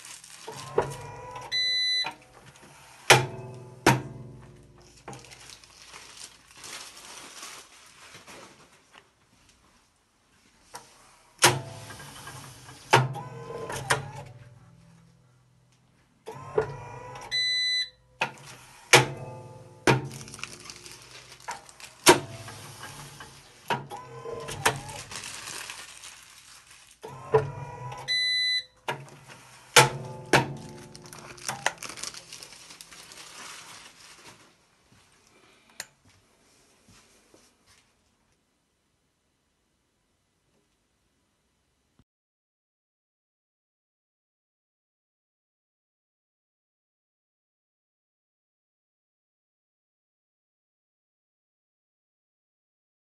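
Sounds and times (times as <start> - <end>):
sealing head clunks: 0.0 - 5.6, 18.2 - 26.0, 28.9 - 34.4
short electronic beep: 1.5 - 2.1, 17.3 - 18.0, 28.0 - 28.8.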